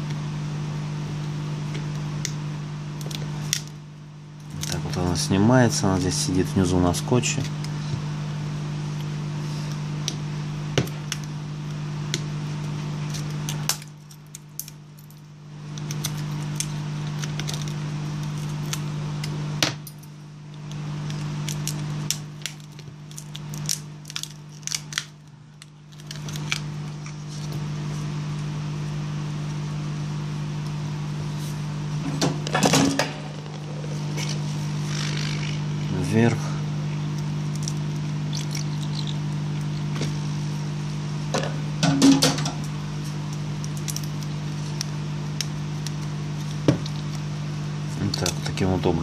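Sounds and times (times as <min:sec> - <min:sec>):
handling noise: 0:32.0 - 0:35.9.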